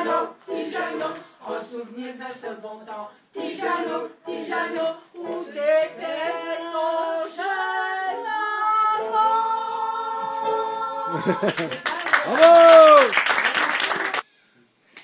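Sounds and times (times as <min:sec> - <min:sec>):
group of voices singing: 0:00.0 - 0:11.7.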